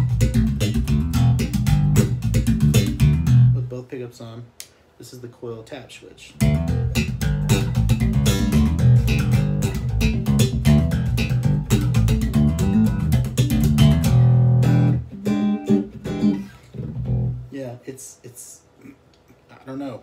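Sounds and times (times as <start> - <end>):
electric bass plucked notes: 0.0 - 3.7, 6.4 - 17.5.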